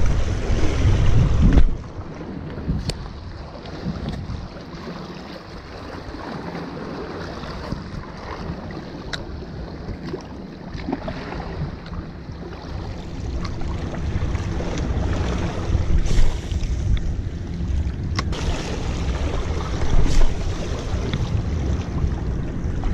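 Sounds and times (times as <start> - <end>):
wind buffeting microphone: 0.0 - 22.9
water washing against rocks: 18.2 - 21.8.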